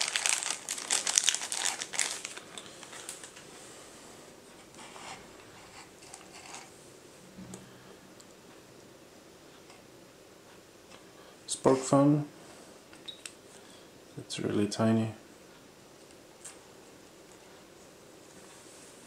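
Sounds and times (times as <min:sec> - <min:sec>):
plastic bag crinkling: 0:00.0 - 0:03.4.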